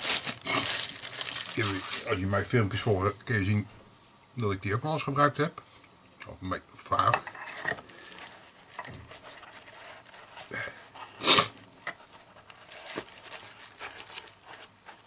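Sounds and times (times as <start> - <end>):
fabric pouch rustling: 0.0 - 2.2, 12.0 - 15.0.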